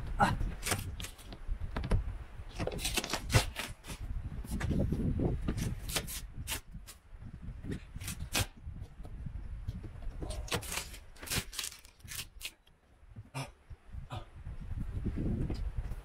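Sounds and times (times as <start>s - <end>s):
tape tearing with crackles: 0.5s - 1.4s, 2.5s - 4.0s, 5.6s - 7.0s, 7.7s - 8.6s, 10.3s - 12.7s.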